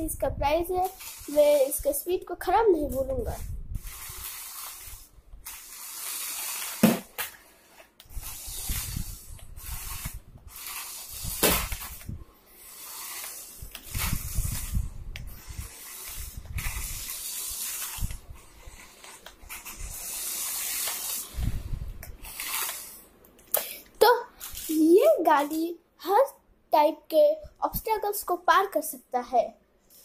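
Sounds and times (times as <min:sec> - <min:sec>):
toy car motor whirring: 0:00.4 - 0:07.0, 0:07.6 - 0:23.0, 0:24.0 - 0:25.7.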